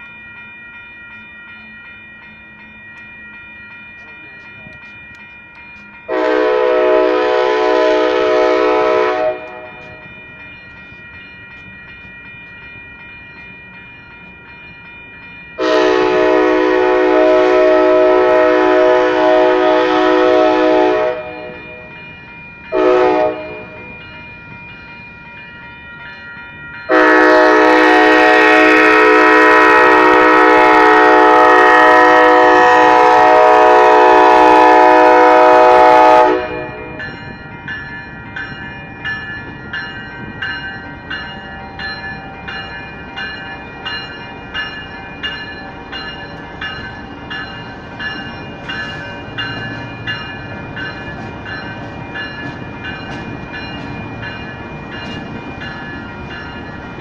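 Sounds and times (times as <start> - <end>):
crossing bells ringing: 0.0 - 57.0
locomotive horn blasts: 6.1 - 9.9, 15.6 - 21.6, 22.8 - 23.8, 26.9 - 37.0.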